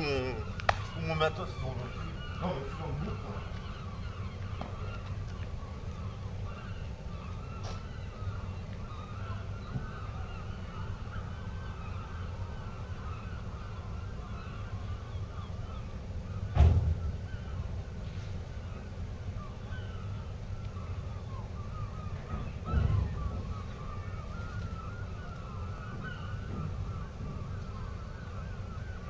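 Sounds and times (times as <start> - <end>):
footstep thud on boat: 16.5 - 17.2.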